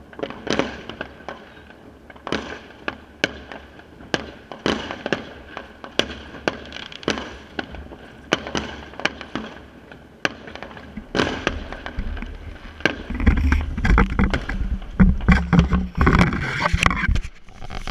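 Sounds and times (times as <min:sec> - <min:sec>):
fireworks bangs and crackles: 0:00.0 - 0:17.9
microphone handling rumble: 0:11.0 - 0:17.9.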